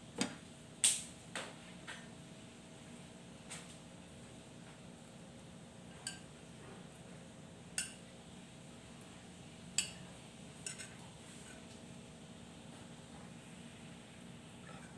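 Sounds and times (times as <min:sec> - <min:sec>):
metal utensil clinking on plate: 0:10.6 - 0:11.0.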